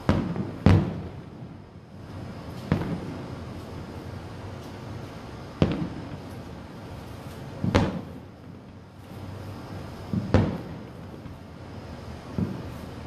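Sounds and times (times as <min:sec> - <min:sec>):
firework shells bursting: 0:00.0 - 0:11.5.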